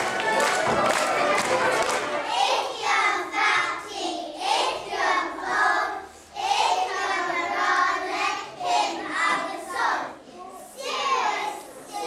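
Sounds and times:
children singing together: 0.1 - 12.0.

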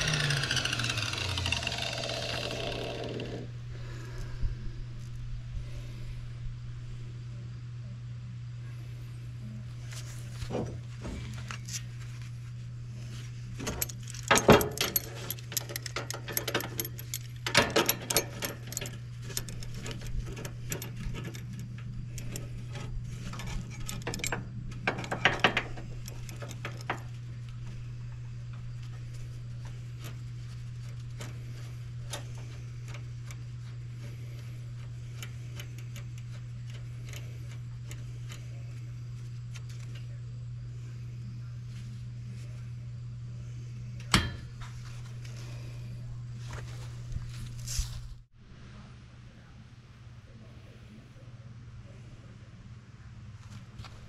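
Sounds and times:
low electrical hum: 0.0 - 54.0
metallic clicks and clinks: 13.6 - 27.0.

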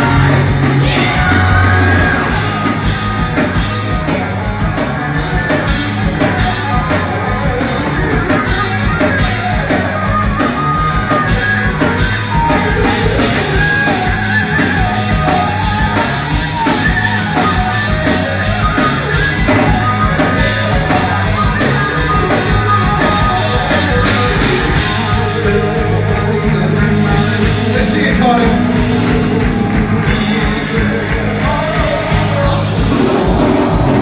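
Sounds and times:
singer's voice: 0.0 - 8.6, 22.6 - 34.0
live hard rock band: 0.0 - 34.0.

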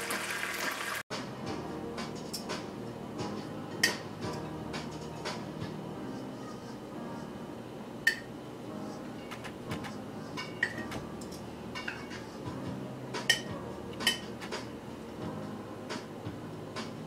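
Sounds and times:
metal tongs clinking on plate: 10.4 - 12.2.

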